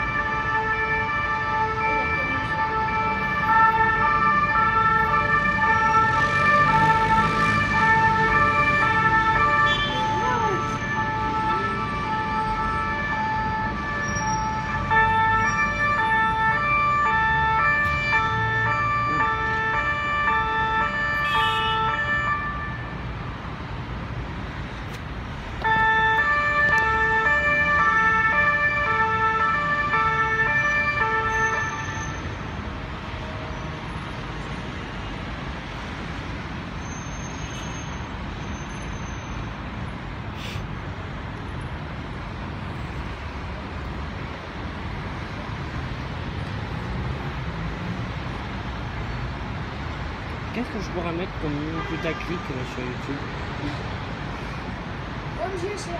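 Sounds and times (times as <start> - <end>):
two-tone police siren: 0.0 - 23.4, 25.6 - 36.8
city traffic: 0.0 - 55.9.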